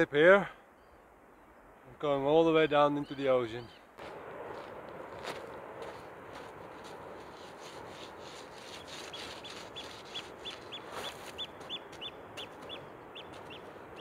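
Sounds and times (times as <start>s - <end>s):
bird piping calls: 2.9s - 3.9s, 8.7s - 14.0s
footsteps on stones: 4.0s - 13.7s.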